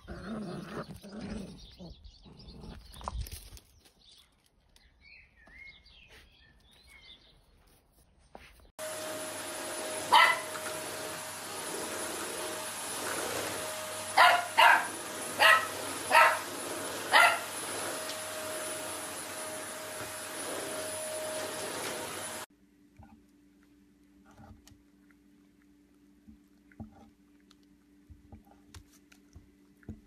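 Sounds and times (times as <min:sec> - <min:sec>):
vacuum cleaner motor whine: 0:08.8 - 0:22.5
puppy barking: 0:10.1 - 0:10.6, 0:14.1 - 0:16.5, 0:17.1 - 0:17.5.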